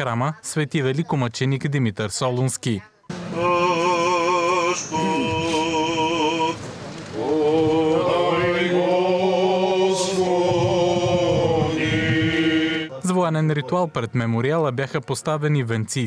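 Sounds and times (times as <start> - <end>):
priests chanting: 3.1 - 13.0.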